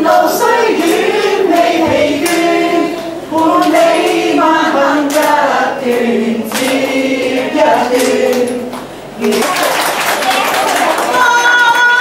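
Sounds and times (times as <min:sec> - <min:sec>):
group of people singing: 0:00.0 - 0:10.0.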